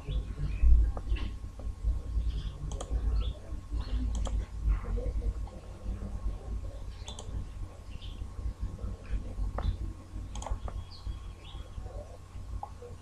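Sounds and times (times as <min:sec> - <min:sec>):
low background rumble: 0:00.0 - 0:13.0
computer mouse clicks: 0:02.3 - 0:03.0, 0:03.8 - 0:04.5, 0:07.0 - 0:07.4, 0:09.5 - 0:10.8.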